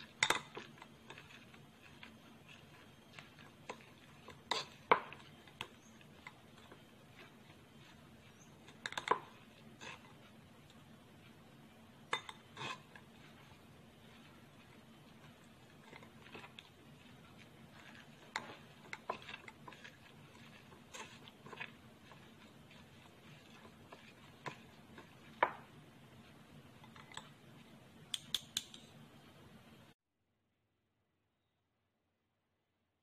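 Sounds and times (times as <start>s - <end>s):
spoon scraping mesh strainer: 0.0s - 10.3s, 12.1s - 25.7s
low steady hum: 0.0s - 30.0s.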